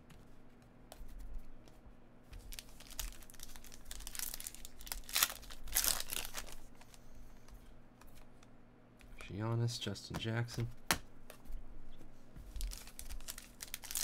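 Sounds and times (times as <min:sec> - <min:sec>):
foil wrapper tearing and crinkling: 0:02.5 - 0:06.6, 0:12.6 - 0:14.0.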